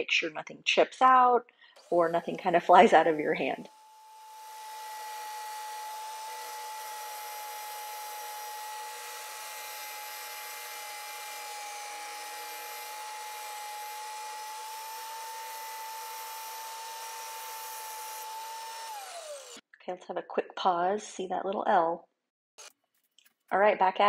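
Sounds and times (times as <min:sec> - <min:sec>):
tile saw grinding through tile: 0:01.8 - 0:19.6.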